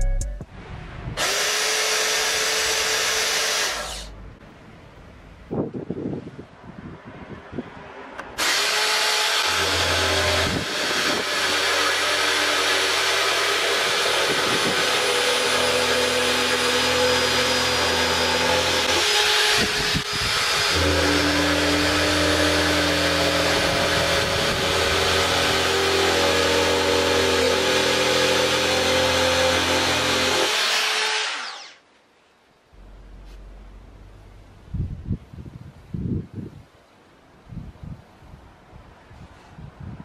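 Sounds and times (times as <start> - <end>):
electric drill routing wood: 1.2 - 4.2, 8.4 - 31.8.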